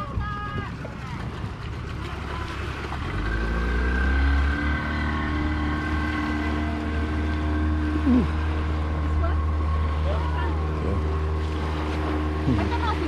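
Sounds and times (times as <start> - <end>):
wind buffeting microphone: 0.0 - 3.1
outboard motor running: 0.0 - 13.0.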